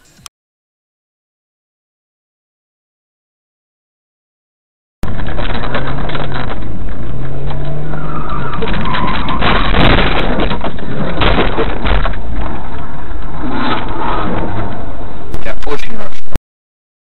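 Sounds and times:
car engine and road noise: 0.0 - 0.3, 5.0 - 16.4.

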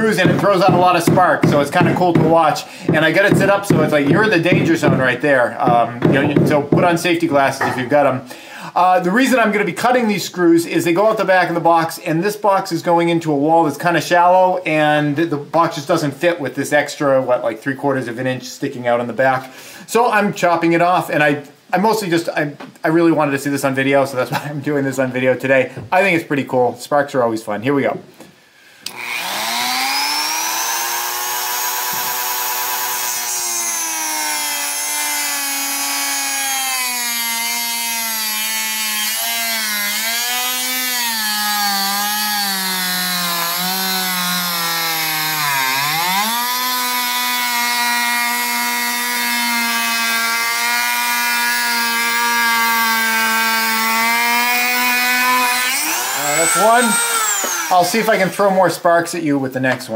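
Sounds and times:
rotary tool cutting metal screw: 28.9 - 49.6, 50.2 - 57.9.

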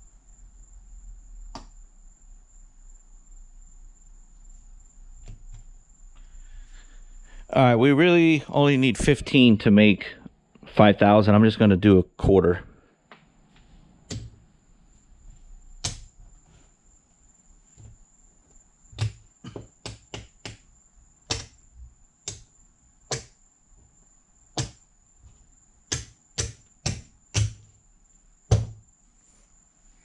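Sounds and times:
faint high-pitched whine: 0.0 - 30.0.

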